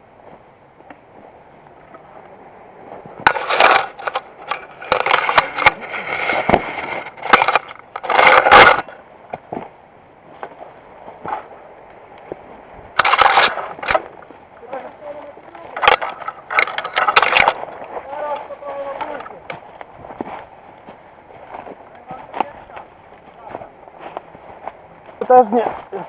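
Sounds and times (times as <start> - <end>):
foliage scraping against camera: 3.0 - 9.7, 10.3 - 26.0
twigs snapping: 11.2 - 25.3
footsteps crunching dry leaves: 12.2 - 26.0.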